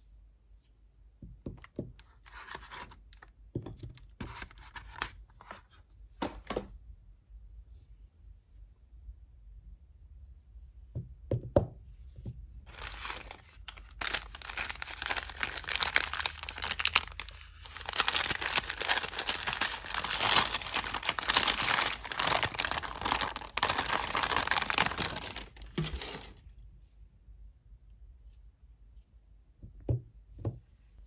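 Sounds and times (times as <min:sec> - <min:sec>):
paper wrapper crinkling: 0:12.7 - 0:26.5.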